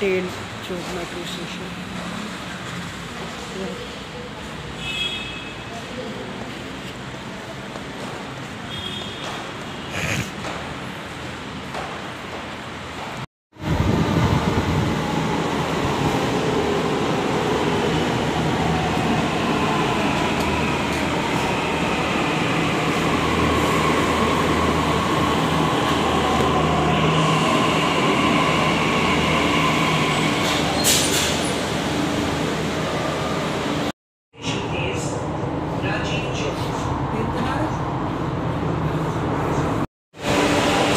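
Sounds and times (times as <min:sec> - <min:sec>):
metro train rumbling: 0:12.0 - 0:40.9.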